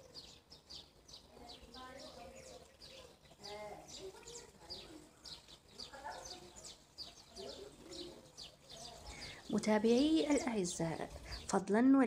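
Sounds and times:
faint bird chirping: 0.0 - 11.8.

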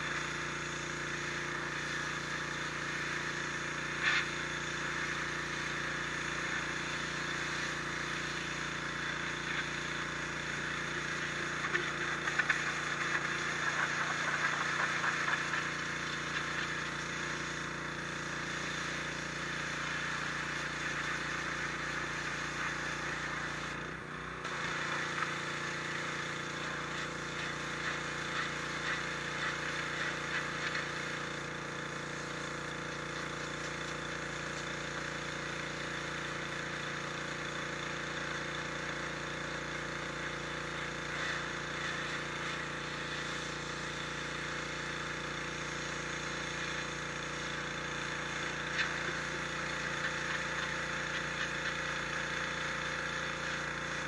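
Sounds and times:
pressure washer motor humming: 0.0 - 54.0
water jet hissing on stone: 0.0 - 54.0.

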